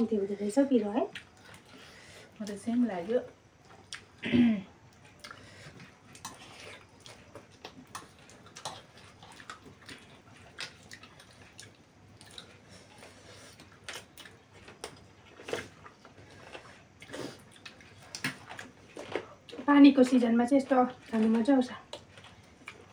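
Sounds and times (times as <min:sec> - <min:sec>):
chewing and slurping noodles: 0:04.9 - 0:19.7.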